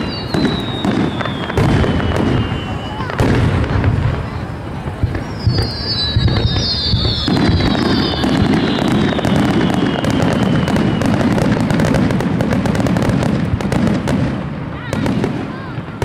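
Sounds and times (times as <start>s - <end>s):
whistling fireworks shells: 0.0s - 3.5s, 4.9s - 12.5s
fireworks crackling: 0.0s - 16.0s
fireworks launching and bursting: 0.0s - 16.0s.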